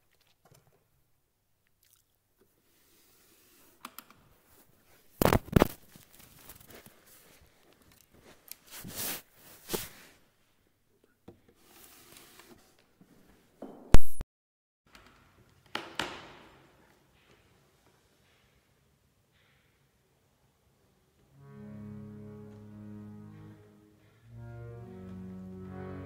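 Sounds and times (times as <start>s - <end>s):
rustling handling scrapes: 4.6s - 10.2s, 11.6s - 13.4s.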